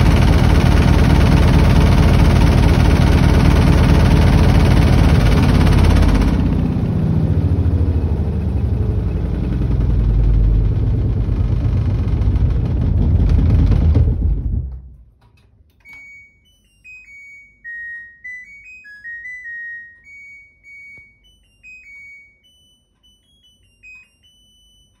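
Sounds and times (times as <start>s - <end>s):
washing machine spinning loudly: 0.0s - 15.2s
electronic beeper melody: 15.8s - 25.0s.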